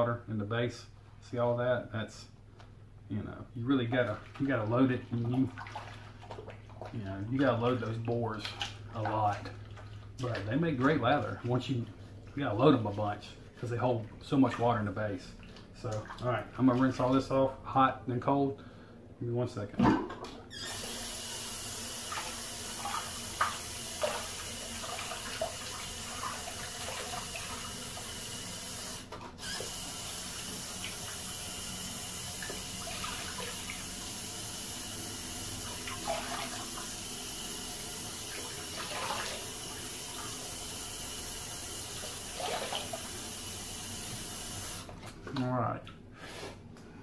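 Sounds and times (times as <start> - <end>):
tap water running into sink: 19.9 - 45.5
water splashing on face: 38.3 - 40.4, 42.0 - 43.2.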